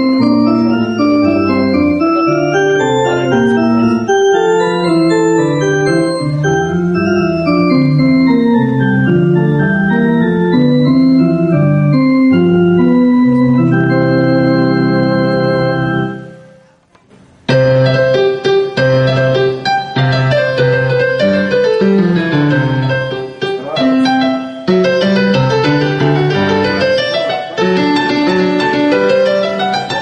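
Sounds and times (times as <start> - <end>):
digital piano chords and melody: 0.0 - 16.8, 17.5 - 30.0.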